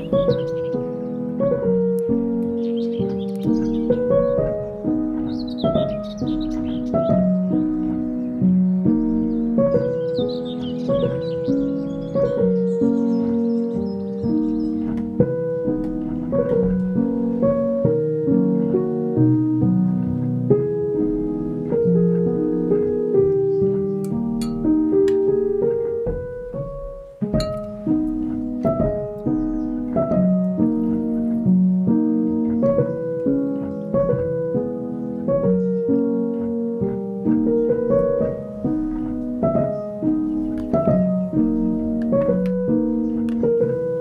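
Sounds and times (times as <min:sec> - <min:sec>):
calm piano melody: 0:00.0 - 0:44.0.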